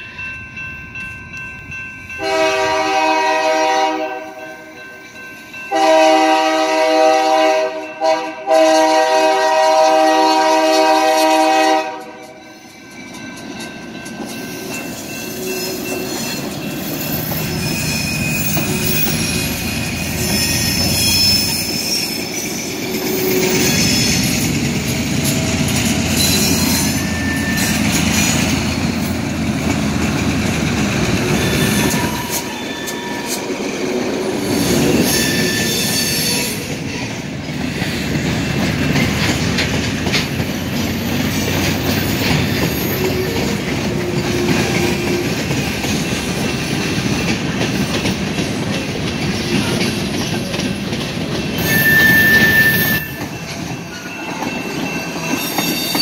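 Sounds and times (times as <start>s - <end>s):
train wheels clattering on rails: 8.8s - 56.0s
train wheel squeals: 12.0s - 29.3s, 30.0s - 56.0s
diesel locomotive rumble: 22.7s - 35.1s.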